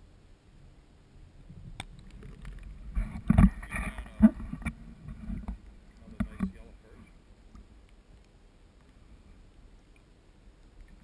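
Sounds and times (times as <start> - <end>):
water sloshing and splashing: 1.5 - 9.3.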